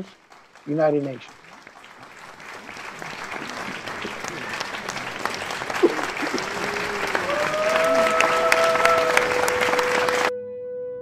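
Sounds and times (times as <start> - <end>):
crowd applauding and cheering: 0.0 - 10.3
held musical note: 6.1 - 11.0.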